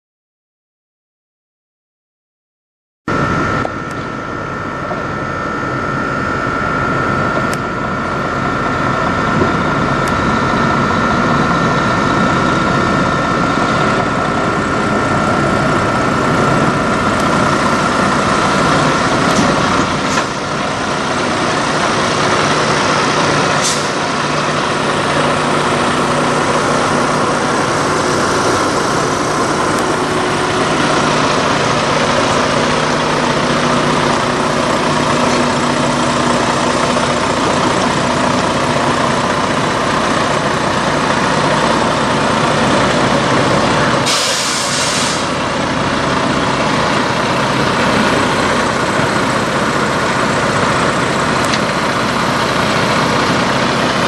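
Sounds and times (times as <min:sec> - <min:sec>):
truck diesel engine running: 0:03.1 - 0:54.0
air brake hisses: 0:23.6 - 0:24.0, 0:44.0 - 0:45.4.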